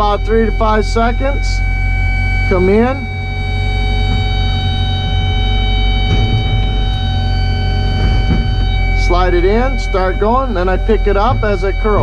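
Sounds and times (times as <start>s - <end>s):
excavator diesel engine running: 0.0s - 12.0s
high hydraulic whine: 0.0s - 12.0s
soft knocks: 3.8s - 9.1s.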